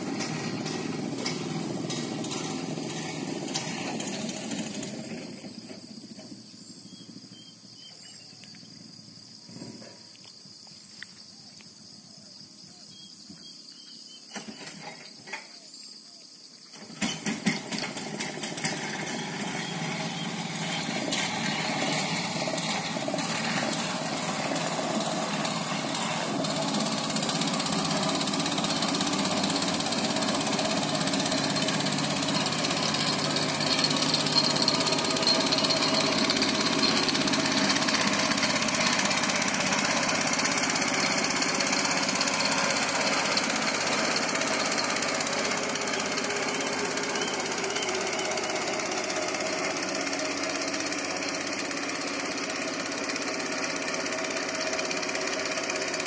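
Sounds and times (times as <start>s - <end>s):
insects trilling: 4.7s - 17.8s.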